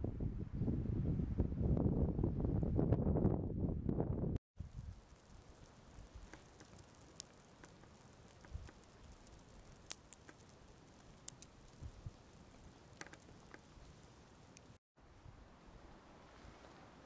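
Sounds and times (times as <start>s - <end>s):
sharp pops of fire: 4.6s - 14.8s
small fire crackling: 4.6s - 14.8s.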